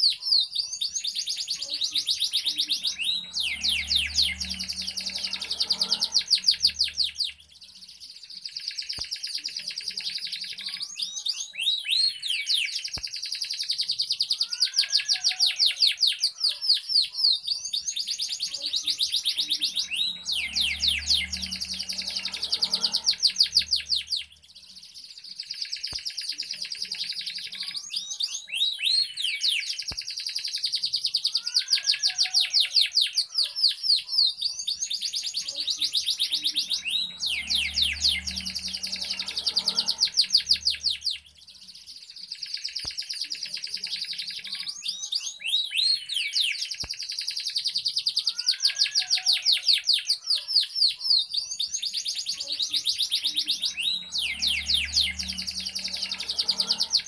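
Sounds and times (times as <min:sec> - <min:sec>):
canary singing trills: 0:00.0 - 0:57.0.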